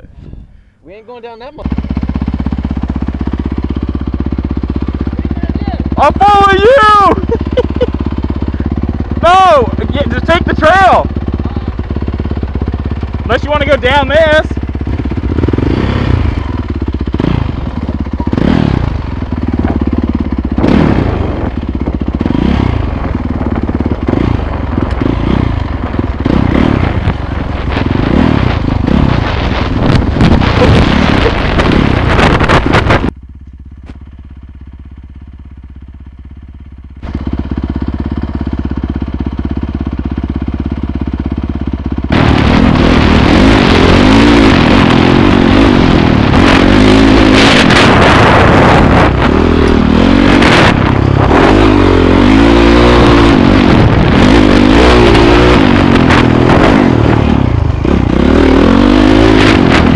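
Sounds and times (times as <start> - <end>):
dirt bike engine revving: 1.5 - 33.2, 37.0 - 59.9.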